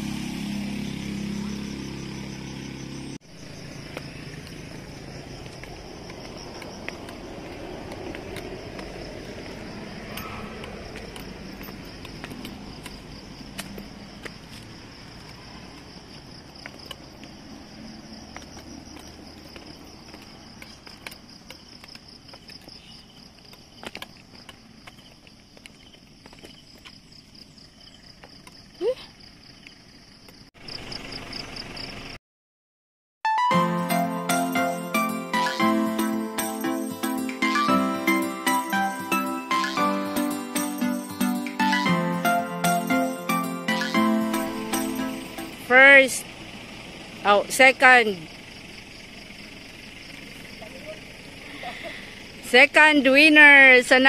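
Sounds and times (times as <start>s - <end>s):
insect chorus trilling: 0.0s - 32.2s, 39.4s - 40.0s, 45.6s - 54.0s.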